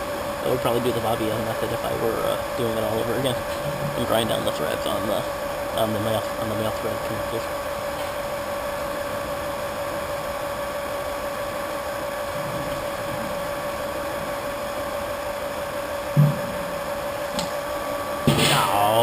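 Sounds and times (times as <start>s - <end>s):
electric pump humming: 0.0s - 19.0s
low thump: 16.2s - 16.6s.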